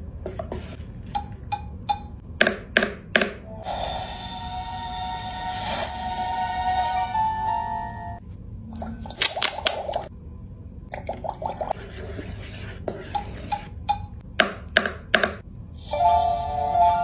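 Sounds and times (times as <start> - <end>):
plastic wand stirring in cauldron: 11.0 - 13.8.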